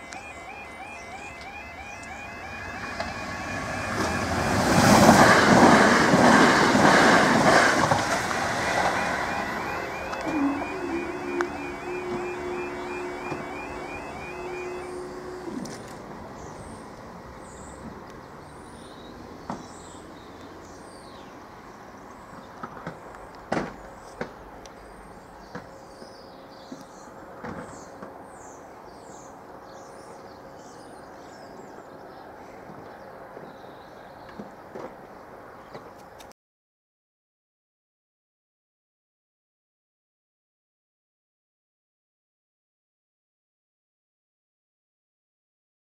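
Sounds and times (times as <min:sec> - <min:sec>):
level crossing alarm: 0:00.0 - 0:04.9, 0:08.4 - 0:15.9.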